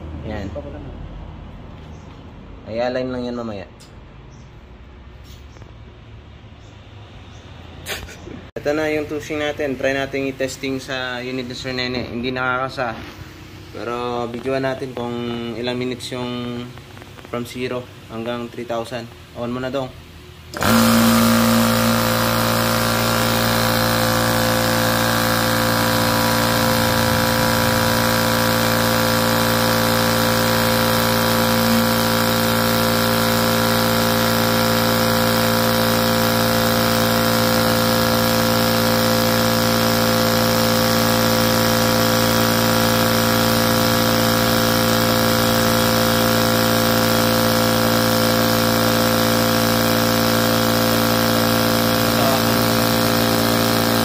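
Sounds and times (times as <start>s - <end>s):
air compressor running: 20.4s - 54.0s.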